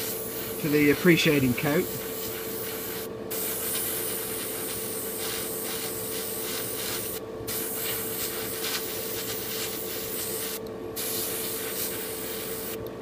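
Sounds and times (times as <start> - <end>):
airbrush hissing: 0.0 - 12.8
steady low hum: 0.0 - 13.0.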